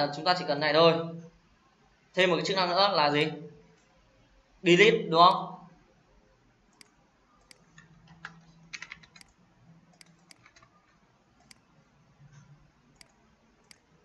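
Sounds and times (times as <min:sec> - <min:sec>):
keyboard and mouse clicks: 0:06.7 - 0:14.0.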